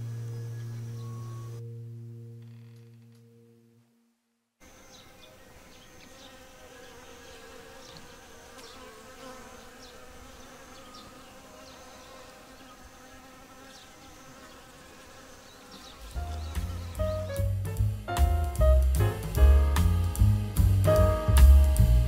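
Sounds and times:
bees buzzing: 4.6s - 22.0s.

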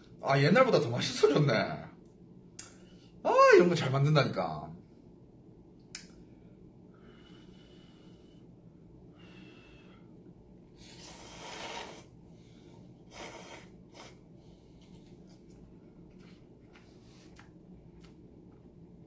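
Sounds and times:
person slurping noodles: 10.8s - 12.1s, 13.1s - 14.2s.

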